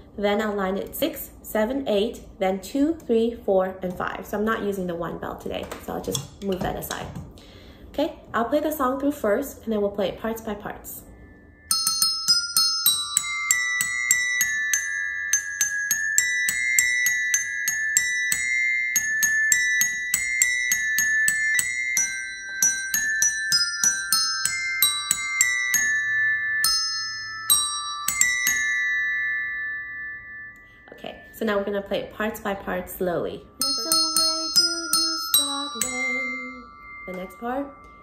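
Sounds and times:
desk bells ringing a melody: 0:10.3 - 0:38.0.

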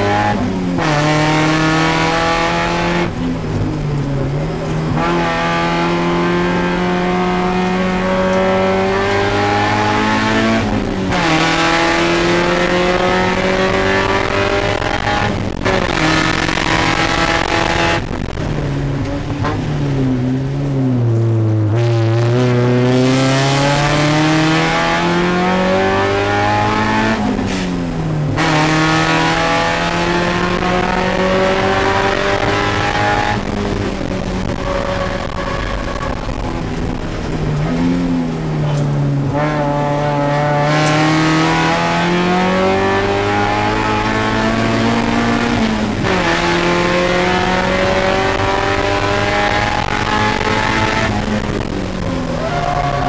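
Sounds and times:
race car engine revving: 0:00.0 - 0:53.0.

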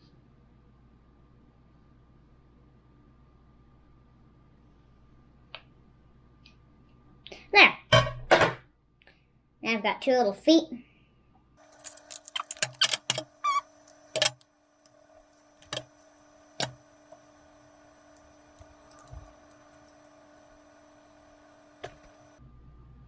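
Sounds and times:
faint steady hum: 0:00.0 - 0:07.9, 0:08.6 - 0:23.0
hands handling small craft pieces: 0:11.6 - 0:14.4
brief squeak: 0:12.7 - 0:13.7.

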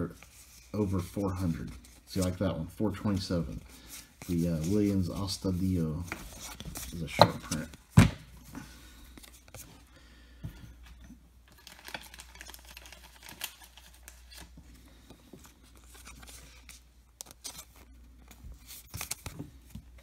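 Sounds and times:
card rustling and clicking: 0:11.5 - 0:20.0.

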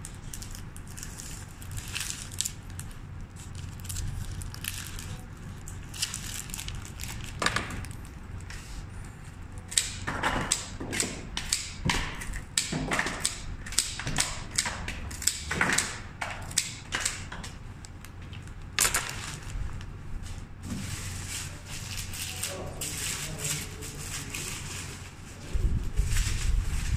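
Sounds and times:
wrapping paper rustling and crinkling: 0:00.0 - 0:09.4, 0:17.8 - 0:26.9.

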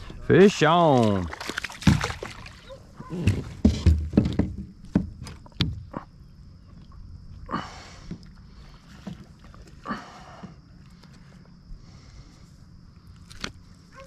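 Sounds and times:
knocks against plastic kayak: 0:03.2 - 0:05.8.

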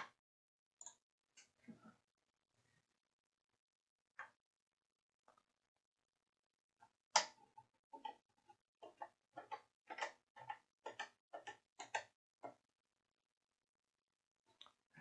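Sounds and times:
faint clicks and knocks: 0:06.8 - 0:12.6.

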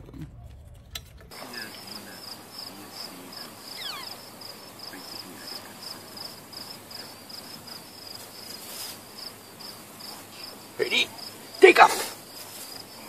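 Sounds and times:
crickets chirping: 0:01.3 - 0:13.0
short falling whistle: 0:03.8 - 0:04.2.

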